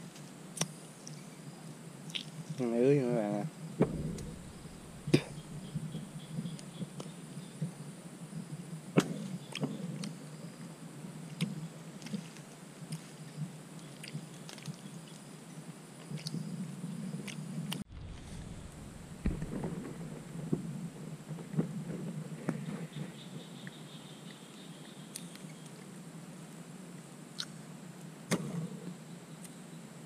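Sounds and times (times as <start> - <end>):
low hum: 3.6 - 6.7, 17.6 - 22.1.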